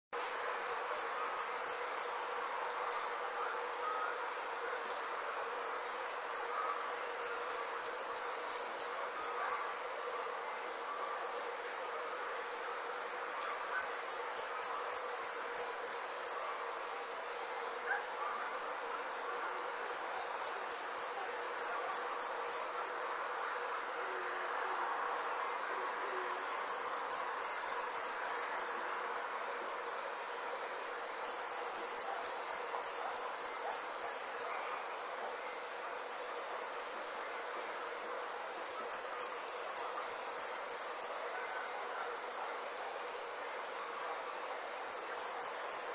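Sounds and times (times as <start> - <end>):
loud rapid insect chirping: 11.6 - 17.2, 19.8 - 29.2, 37.8 - 41.2, 43.0 - 45.9.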